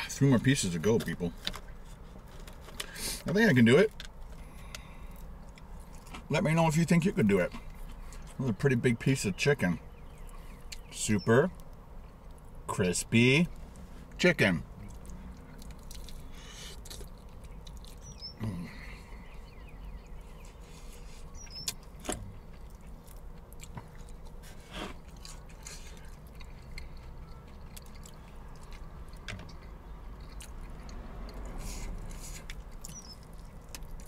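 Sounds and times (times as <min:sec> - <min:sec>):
person chewing crispy chicken: 0:04.2 - 0:06.3, 0:14.8 - 0:19.1, 0:20.2 - 0:34.0.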